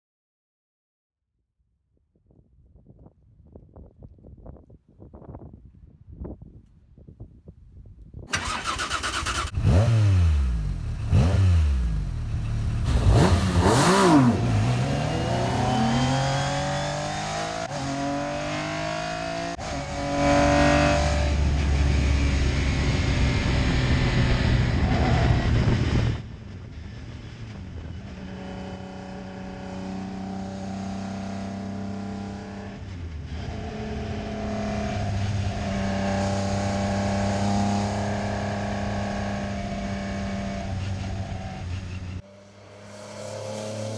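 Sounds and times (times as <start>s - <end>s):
rally car engine revving: 8.4s - 26.2s, 27.8s - 43.9s.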